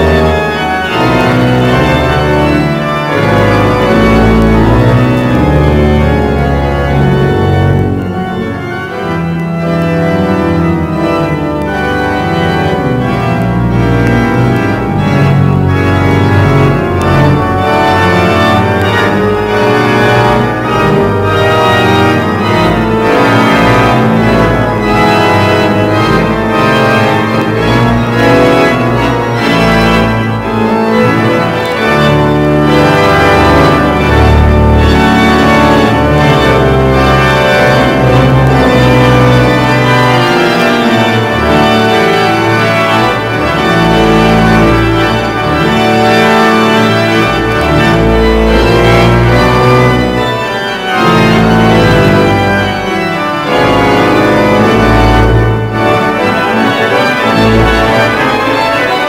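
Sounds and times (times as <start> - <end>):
pipe organ playing chords: 0.0 - 59.0.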